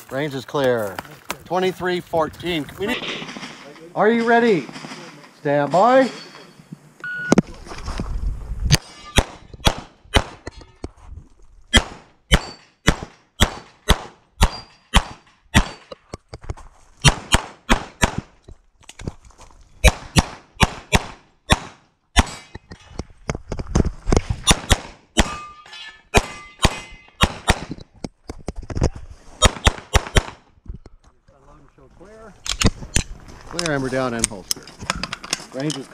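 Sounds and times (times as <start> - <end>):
shot timer beep: 7.0 - 7.4
pistol shots: 8.8 - 10.5, 11.7 - 15.9, 17.0 - 18.3, 19.8 - 22.5, 24.4 - 25.5, 26.1 - 27.8, 29.4 - 30.4.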